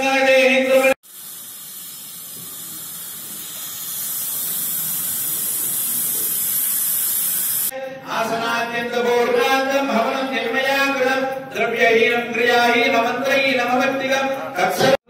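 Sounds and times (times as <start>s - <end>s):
high-pitched hiss: 1.0s - 7.7s.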